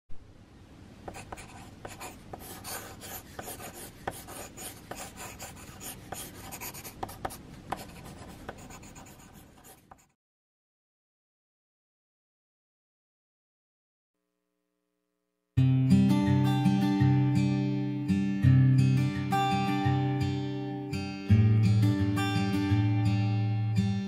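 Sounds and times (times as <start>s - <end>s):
pencil sketching on paper: 1.1s - 10.1s.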